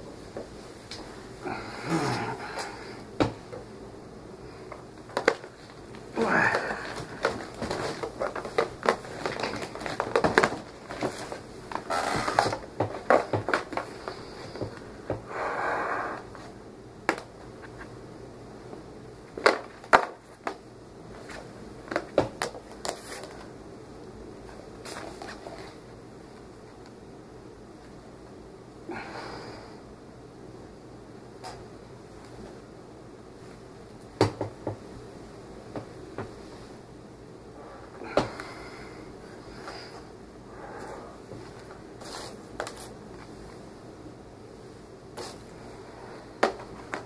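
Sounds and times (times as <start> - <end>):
cardboard packaging rustling: 5.1 - 14.6, 21.3 - 23.4, 41.5 - 43.3.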